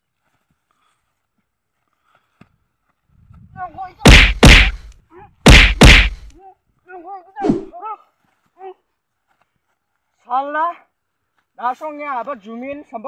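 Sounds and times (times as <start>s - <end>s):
loud punch whacks: 4.0s - 6.3s.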